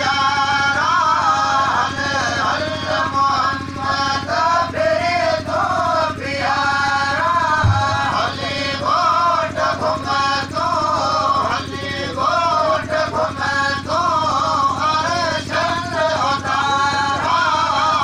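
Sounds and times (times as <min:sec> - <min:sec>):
person singing chant-like melody: 0:00.0 - 0:18.0
low thump: 0:07.6 - 0:08.2.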